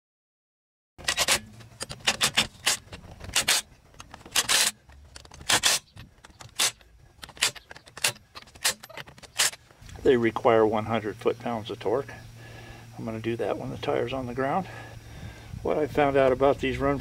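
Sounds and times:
socket and nuts clicking: 0:01.0 - 0:09.6.

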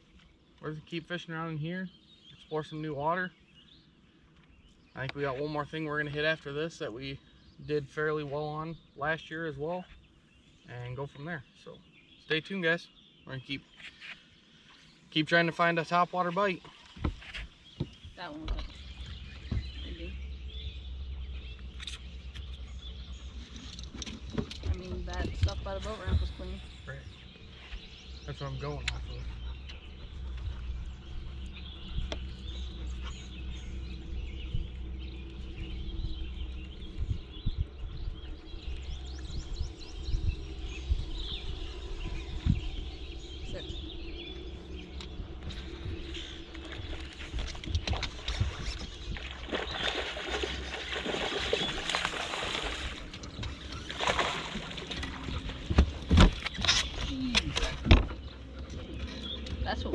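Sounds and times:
small birds chirping: 0:00.0 - 0:59.9
water splashing against boat: 0:16.3 - 0:27.0, 0:44.4 - 0:59.9
knocks and thumps on boat: 0:17.0 - 0:20.0, 0:24.0 - 0:26.6, 0:46.7 - 0:58.4
soft low thumps: 0:17.0 - 0:23.2, 0:24.2 - 0:27.1, 0:28.8 - 0:50.0
low rumble: 0:17.9 - 0:59.9.

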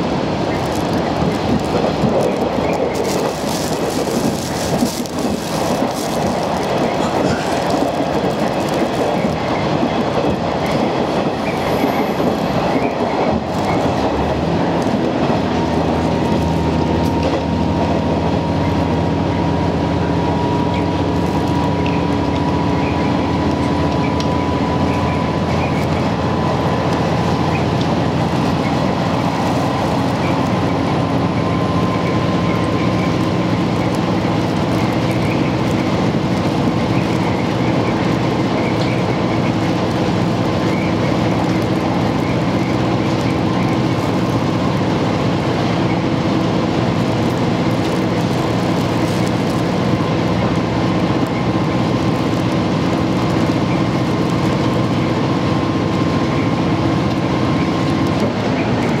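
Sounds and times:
wheel-on-rail rumble: 0:00.0 - 0:59.0
diesel engine drone: 0:13.3 - 0:59.0.

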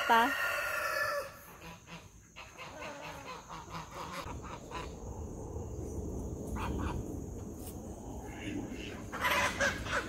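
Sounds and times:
geese honking: 0:00.4 - 0:04.9, 0:08.4 - 0:10.0
low rumble: 0:04.2 - 0:10.0.

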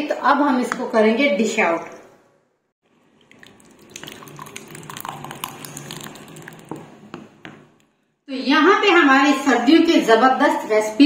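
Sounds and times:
soup popping and splashing: 0:02.8 - 0:08.0.

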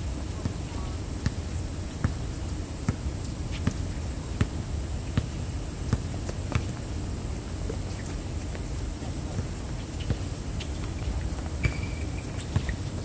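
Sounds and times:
basketball bouncing: 0:02.0 - 0:03.8, 0:05.2 - 0:06.8, 0:10.0 - 0:10.2, 0:10.8 - 0:12.8.

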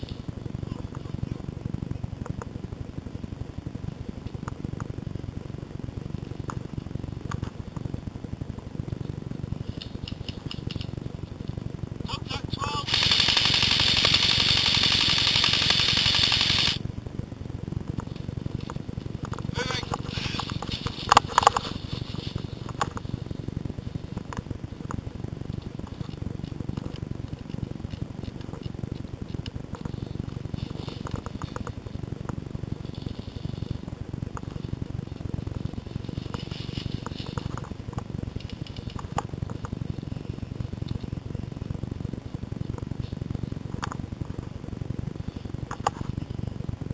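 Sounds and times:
gear clicks and rustles: 0:00.0 - 0:12.1, 0:12.8 - 0:46.9
airsoft rifle full-auto burst: 0:12.6 - 0:16.8
dry leaves underfoot: 0:19.6 - 0:23.3.

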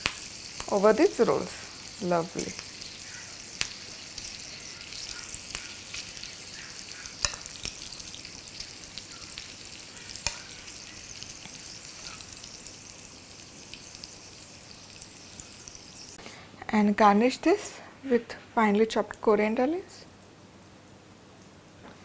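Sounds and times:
hot oil sizzling: 0:00.0 - 0:16.2.

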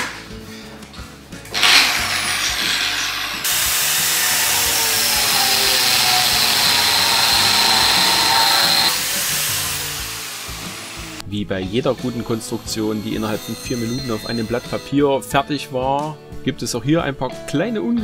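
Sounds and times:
angle grinder grinding steel: 0:01.5 - 0:11.2, 0:11.9 - 0:15.0.

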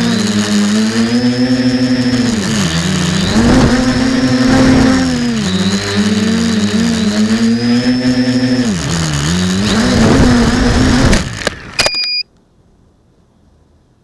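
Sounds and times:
quadcopter motors whining: 0:00.0 - 0:11.9
drone crashing into plants: 0:03.0 - 0:05.4.

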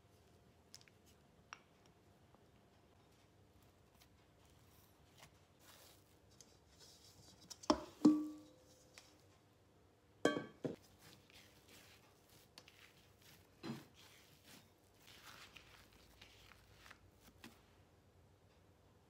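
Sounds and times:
metal bowl clanking on counter: 0:10.3 - 0:10.8
dough kneading patting: 0:10.6 - 0:17.7.

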